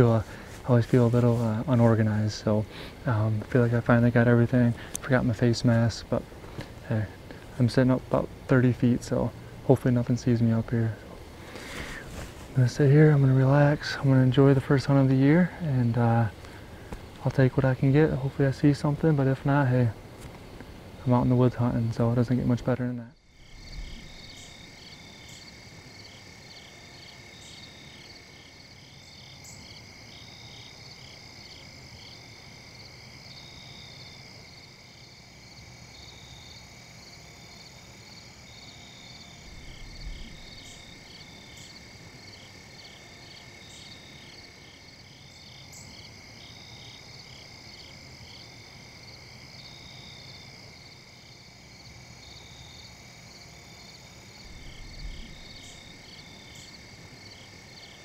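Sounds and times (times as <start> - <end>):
insect chirps: 0.0 - 58.0
cricket-like trill: 23.2 - 58.0
low bump: 39.4 - 41.1, 54.4 - 56.3.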